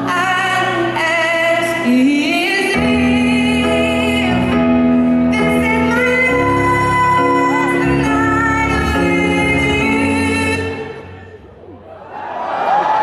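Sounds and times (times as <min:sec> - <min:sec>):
band or keyboard accompaniment: 0:01.8 - 0:11.7.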